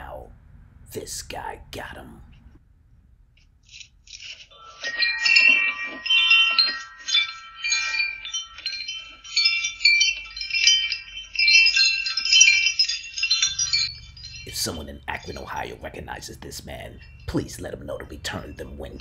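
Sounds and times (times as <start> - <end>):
wind chimes jangling: 4.1 - 19.0.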